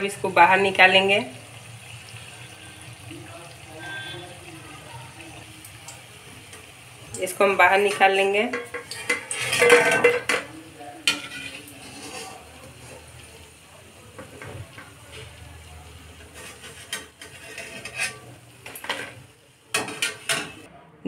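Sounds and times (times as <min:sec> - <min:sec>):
frying sizzle in hot oil: 0:00.0 - 0:20.7
metal spoon scraping a pan: 0:07.8 - 0:13.0, 0:16.1 - 0:20.7.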